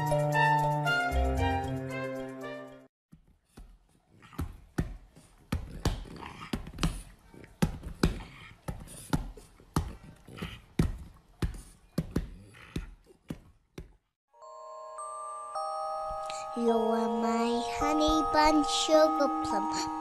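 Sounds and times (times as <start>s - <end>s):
background music with percussive beat: 0.0s - 2.8s.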